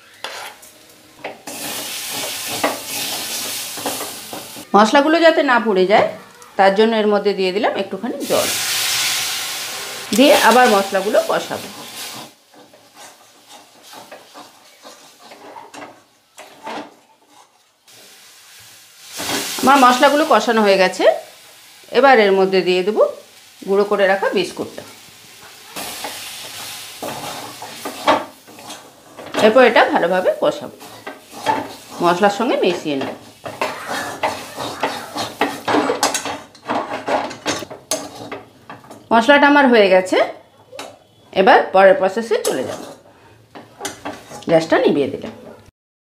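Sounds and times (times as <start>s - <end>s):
metal spatula scraping spice paste: 0.0s - 0.7s, 10.6s - 15.8s, 25.4s - 29.4s, 30.6s - 32.4s, 33.1s - 36.3s, 37.9s - 38.5s.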